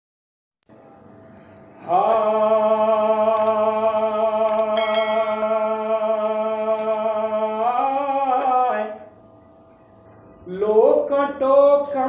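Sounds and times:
man singing a held note: 0:01.8 - 0:09.2.

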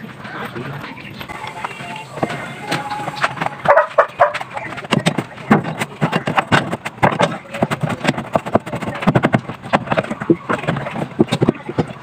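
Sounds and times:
tool clicking and clattering on engine parts: 0:02.8 - 0:12.0.

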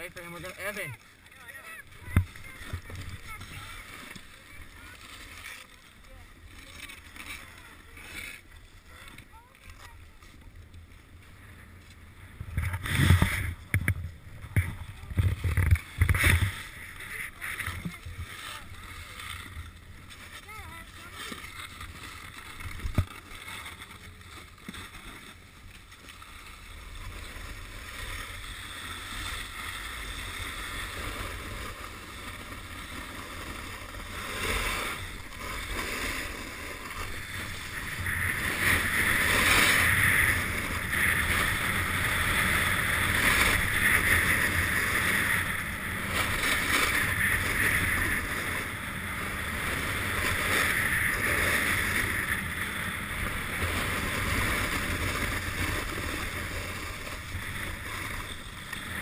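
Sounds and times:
snowboard scraping over snow: 0:00.0 - 0:59.0
wind rushing over microphone: 0:11.4 - 0:20.0.

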